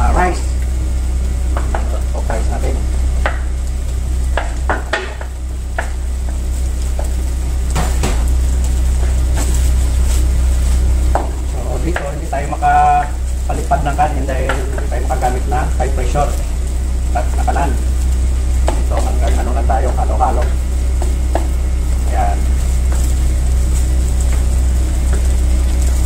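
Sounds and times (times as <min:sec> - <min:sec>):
steady low hum: 0:00.0 - 0:26.0
vegetables sizzling in frying pan: 0:00.0 - 0:26.0
wooden spoon scraping a pan: 0:09.0 - 0:12.3.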